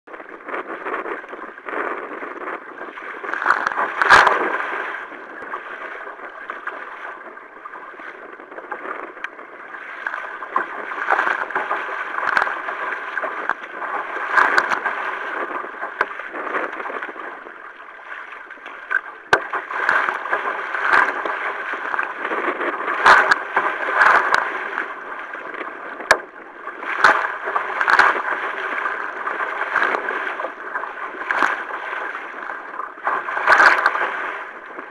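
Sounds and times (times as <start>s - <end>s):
water slapping against hull: 0.1s - 34.9s
paddle splashing: 0.2s - 34.9s.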